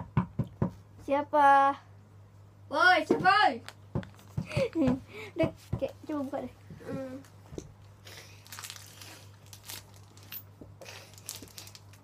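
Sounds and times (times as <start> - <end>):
rustling and shuffling: 3.0 - 12.0.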